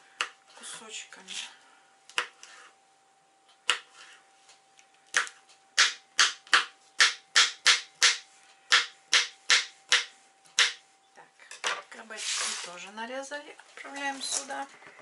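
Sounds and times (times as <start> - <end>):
knife chopping on plastic board: 2.1 - 2.4, 3.6 - 3.9, 5.1 - 10.8.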